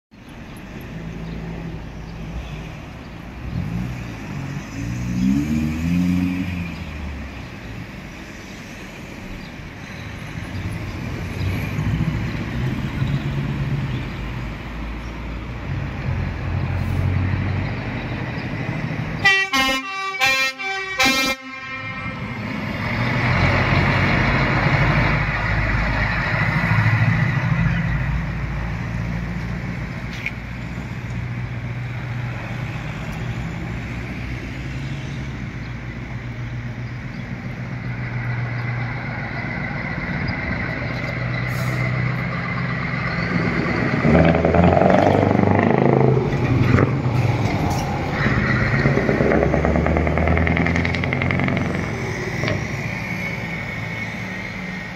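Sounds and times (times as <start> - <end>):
train horn blasts: 19.2 - 22.2.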